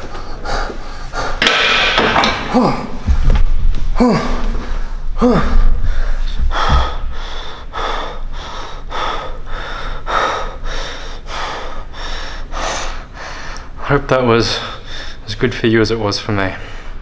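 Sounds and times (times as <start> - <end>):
man gasping breaths: 0.0 - 1.5, 3.9 - 13.8
man groaning: 2.3 - 3.2, 3.9 - 5.8.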